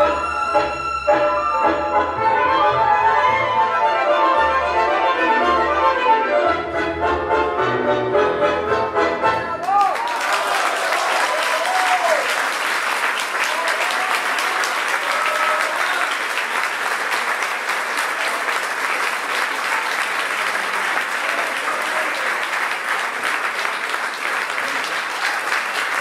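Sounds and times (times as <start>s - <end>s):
audience applauding: 9.6s - 26.0s.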